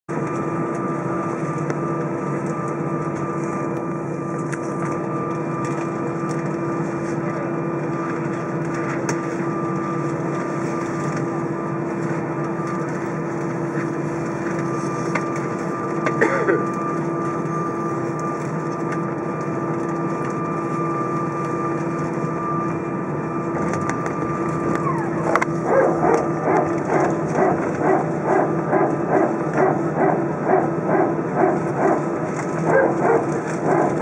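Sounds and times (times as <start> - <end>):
cabin air running: 0.1 - 34.0
jet engines droning: 0.1 - 34.0
thin high whine: 19.4 - 34.0.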